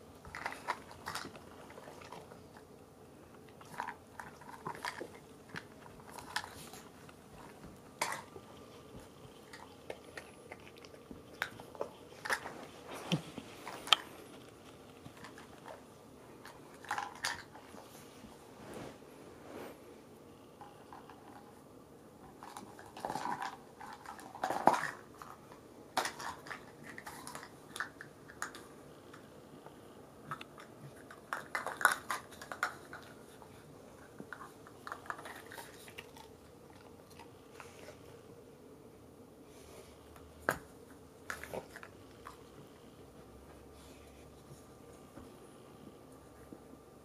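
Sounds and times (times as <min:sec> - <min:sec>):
dog chewing crunchy treats: 0:00.1 - 0:18.1, 0:22.2 - 0:29.3, 0:30.2 - 0:38.2, 0:40.4 - 0:42.8
plastic cups clicking and clattering: 0:26.0 - 0:28.6.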